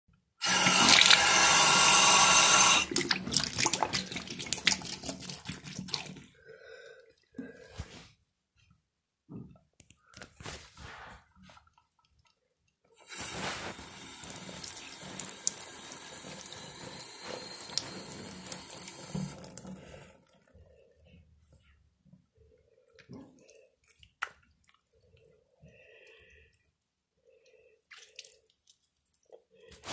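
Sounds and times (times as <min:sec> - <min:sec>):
water draining and dripping: 0:00.4 - 0:06.4, 0:12.0 - 0:21.0.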